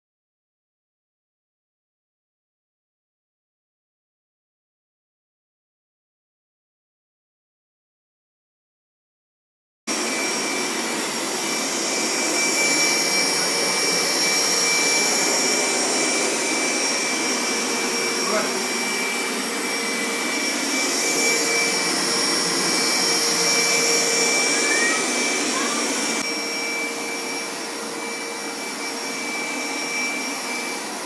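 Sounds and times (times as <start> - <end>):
carpet washer motor whining: 9.9 - 31.0.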